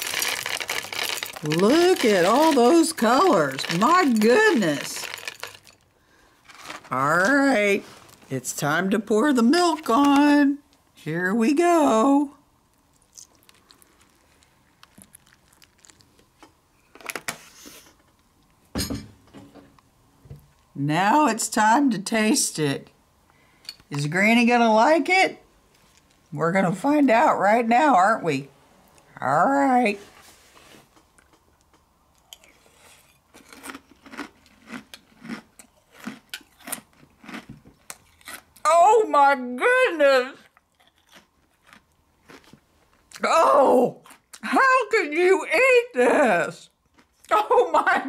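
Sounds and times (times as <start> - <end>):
person chewing crunchy cereal: 0.0 - 7.0, 12.8 - 16.3, 32.2 - 38.7, 40.4 - 43.2, 46.8 - 47.3
bowl clatter: 0.1 - 5.8.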